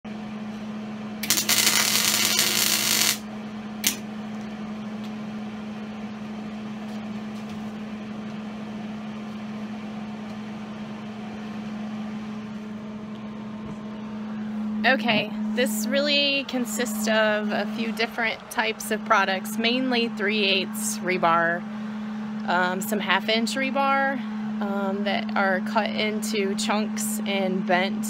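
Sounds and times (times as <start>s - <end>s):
steady low hum: 0.0s - 28.0s
welding arc crackling: 1.2s - 4.0s.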